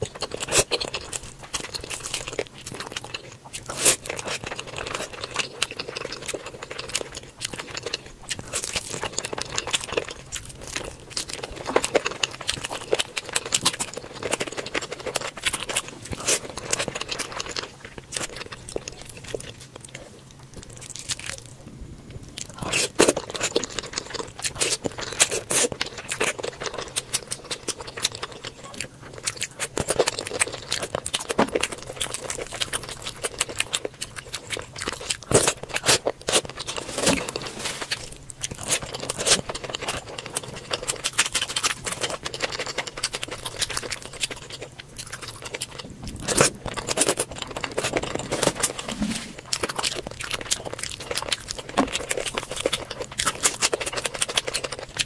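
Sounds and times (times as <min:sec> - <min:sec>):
wet chewing and lip smacks: 0:22.3 - 0:48.8, 0:49.4 - 0:55.0.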